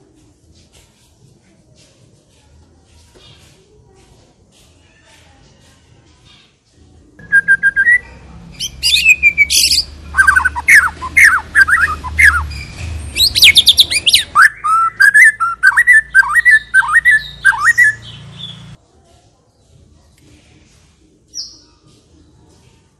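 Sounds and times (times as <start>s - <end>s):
songbird singing: 7.2s - 18.8s.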